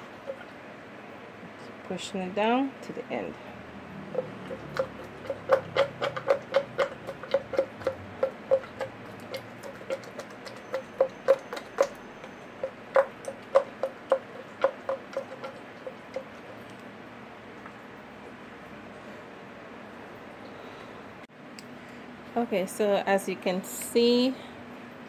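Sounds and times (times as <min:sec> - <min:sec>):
wet clicks and squelches: 0:04.1 - 0:16.9.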